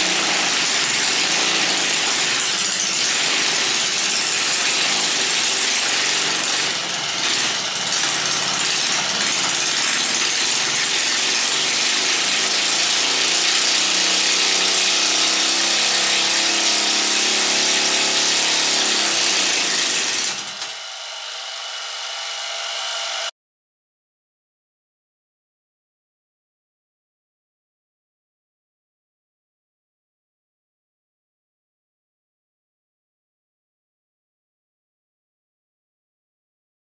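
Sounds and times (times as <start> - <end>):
small engine running at speed: 19.8 - 23.3.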